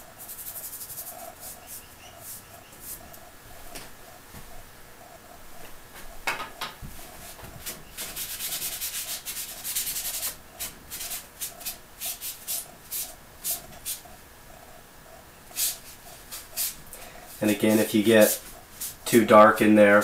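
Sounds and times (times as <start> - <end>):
paintbrush scrubbing on panel: 0.0 - 3.2, 7.0 - 14.1, 15.5 - 19.2.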